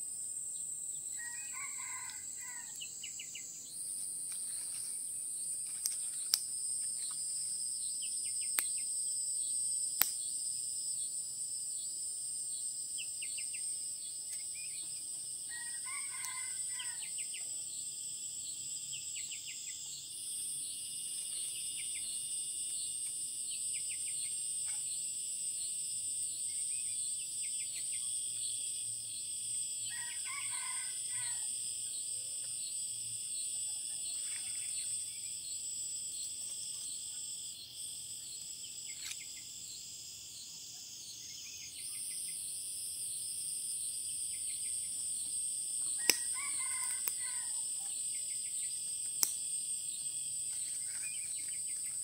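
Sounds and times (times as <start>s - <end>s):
forest insects chorus: 0.0s - 52.0s
rooster crowing: 1.1s - 2.8s, 15.5s - 17.2s, 29.9s - 31.5s, 46.0s - 47.7s.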